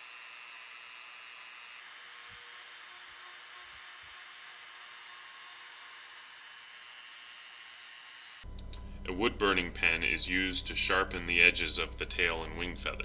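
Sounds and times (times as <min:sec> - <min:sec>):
rotary tool grinding wood: 0:00.0 - 0:08.5.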